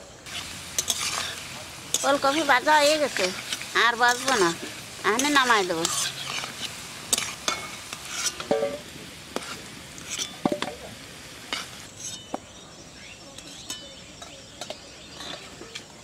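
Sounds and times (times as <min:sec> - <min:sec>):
vegetables sizzling in hot oil: 0:00.0 - 0:16.0
metal spoon clicking and scraping pan: 0:00.3 - 0:08.8, 0:09.4 - 0:10.4, 0:13.3 - 0:15.9.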